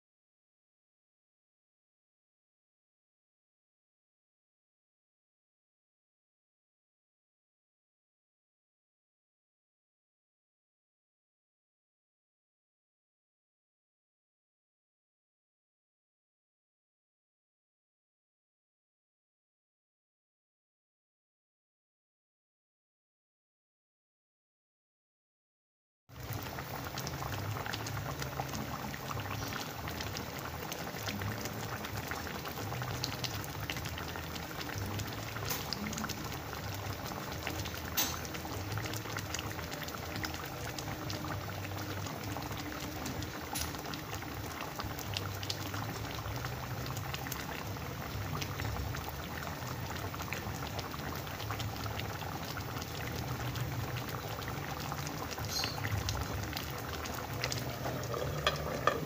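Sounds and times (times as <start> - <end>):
liquid bubbling and popping: 26.1 - 59.0.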